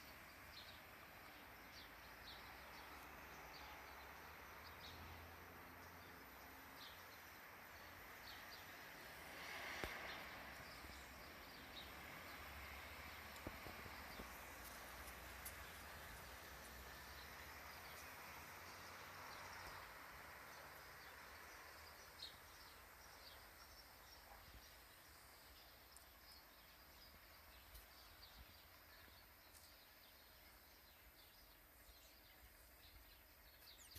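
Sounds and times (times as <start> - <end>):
faint outdoor ambience: 0.0 - 33.9
small birds chirping: 0.0 - 33.9.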